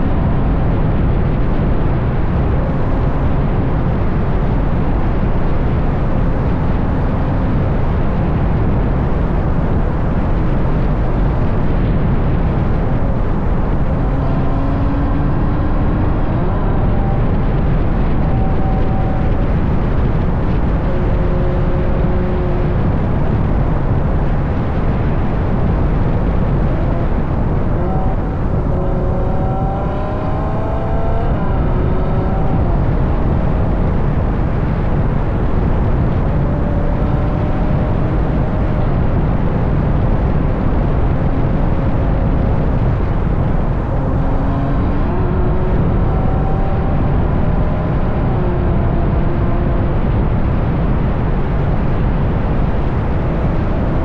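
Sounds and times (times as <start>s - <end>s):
low exhaust drone: 0.0s - 54.0s
wind rushing on microphone: 0.0s - 54.0s.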